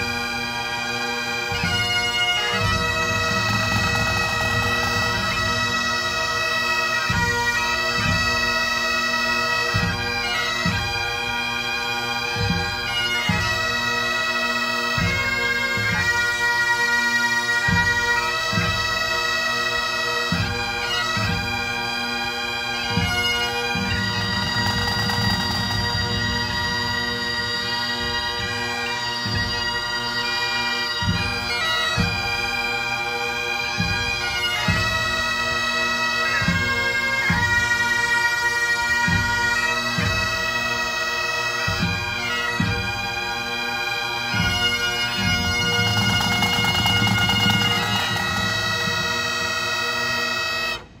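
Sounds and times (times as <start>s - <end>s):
bagpipes with drones: 0.0s - 51.0s
snare drums: 2.7s - 5.6s, 23.9s - 26.8s, 45.3s - 49.8s.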